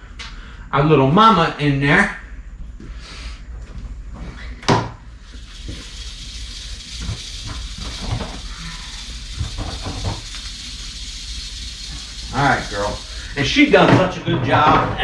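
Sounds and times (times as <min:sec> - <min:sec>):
snake rattling hiss: 0:05.2 - 0:13.9.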